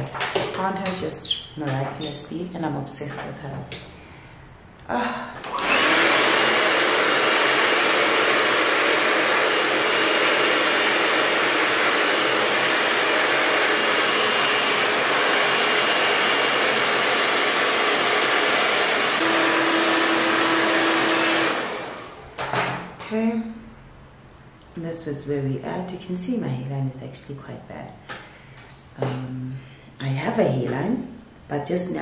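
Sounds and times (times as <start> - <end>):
hair dryer blowing: 5.4 - 22.4.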